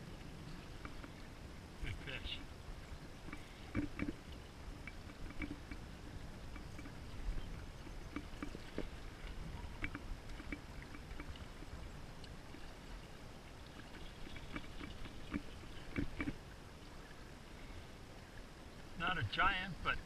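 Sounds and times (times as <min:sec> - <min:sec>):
water slapping against boat: 0:00.0 - 0:17.2
small clicks and knocks: 0:03.3 - 0:04.2, 0:04.8 - 0:05.9, 0:06.5 - 0:12.6, 0:14.2 - 0:16.4.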